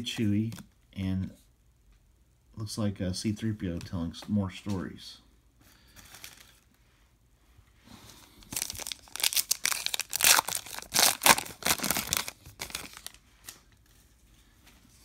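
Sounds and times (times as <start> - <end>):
foil wrapper tearing and crinkling: 8.5 - 13.2.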